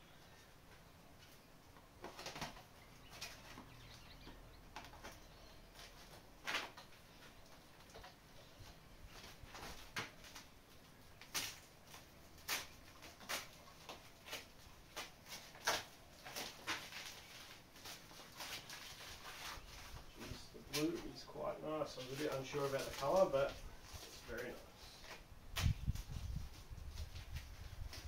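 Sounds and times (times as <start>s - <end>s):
plastic packaging crinkling: 11.1s - 21.0s, 21.9s - 25.2s.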